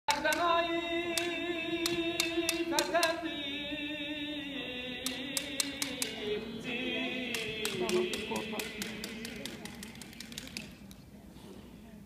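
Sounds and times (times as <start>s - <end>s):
person singing long held notes: 0.1s - 9.6s
sharp clicks: 1.1s - 3.2s, 5.0s - 6.2s.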